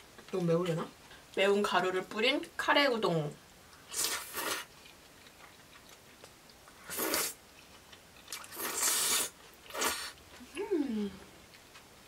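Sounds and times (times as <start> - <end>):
quiet chewing: 3.7 - 11.9
noodles slurped in hissing bursts: 6.8 - 7.4, 8.6 - 10.2.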